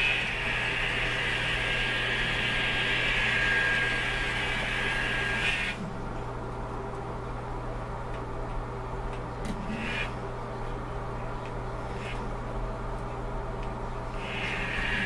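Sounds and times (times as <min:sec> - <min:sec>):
model train motor whining: 0:00.0 - 0:05.8.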